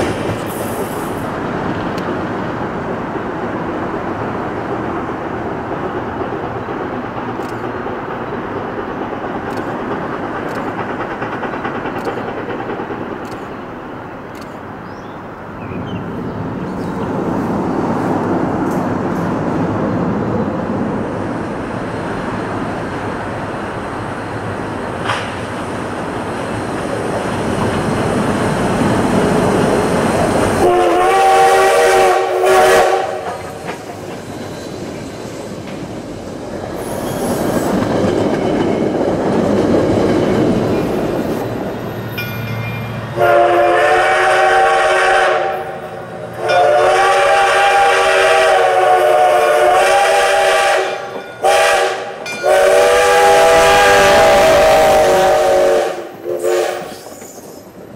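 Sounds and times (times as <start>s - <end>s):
steam locomotive running rumble: 0.0s - 57.9s
steam whistle: 30.6s - 33.4s, 43.2s - 45.8s, 46.4s - 57.2s.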